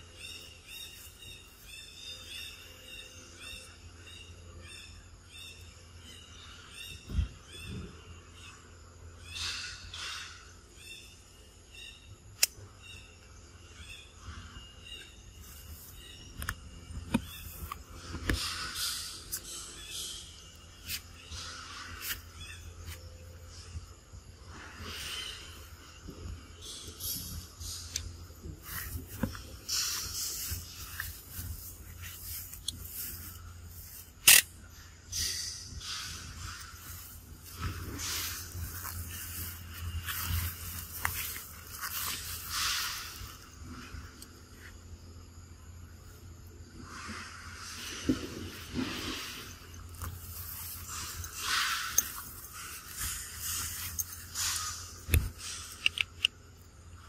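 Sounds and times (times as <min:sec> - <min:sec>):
leaves and grass rustling: 0:27.0 - 0:34.8, 0:35.8 - 0:44.8, 0:47.1 - 0:55.8
sharp click: 0:34.2 - 0:34.6, 0:54.4 - 0:56.4.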